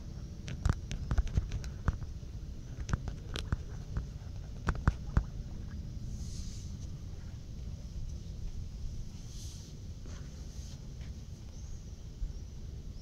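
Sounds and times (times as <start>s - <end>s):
low rumbling noise: 0.0s - 13.0s
sharp clicks and pops: 0.4s - 2.1s, 2.8s - 5.3s.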